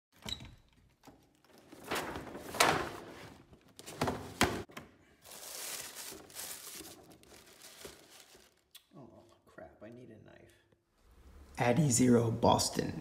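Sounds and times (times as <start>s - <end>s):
tissue paper rustling: 5.2s - 8.7s.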